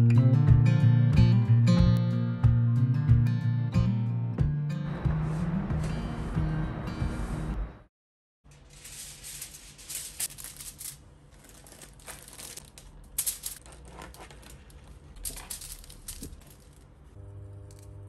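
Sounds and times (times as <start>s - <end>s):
aluminium foil crinkling: 8.5s - 16.9s.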